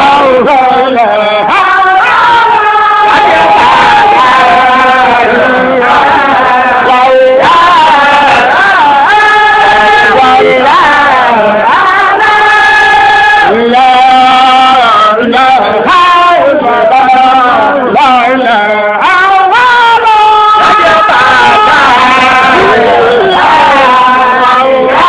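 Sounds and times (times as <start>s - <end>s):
person chanting long notes: 12.5s - 25.0s.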